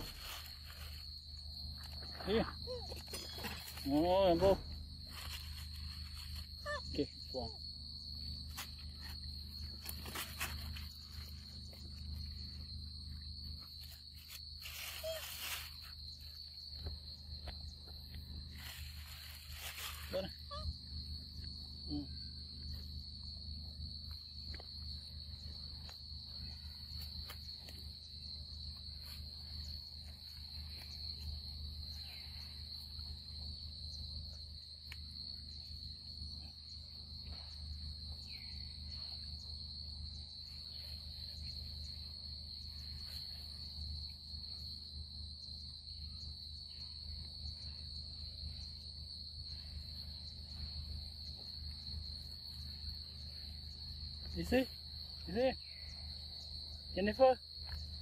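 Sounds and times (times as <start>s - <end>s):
insect chorus drone: 0.0s - 58.0s.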